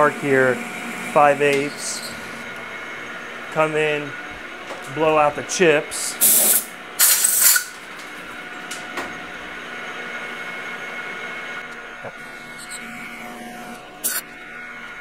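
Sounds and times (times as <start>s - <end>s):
metal lathe humming: 0.0s - 15.0s
compressed air blow gun hissing: 6.2s - 7.7s.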